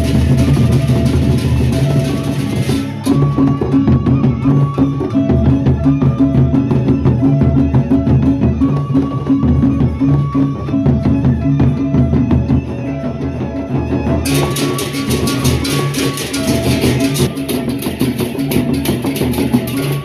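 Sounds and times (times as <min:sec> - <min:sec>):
barrel drums beaten with sticks: 0:00.0 - 0:10.2, 0:14.2 - 0:20.0
ringing metal tones: 0:14.2 - 0:20.0
clashing hand cymbals: 0:14.3 - 0:20.0.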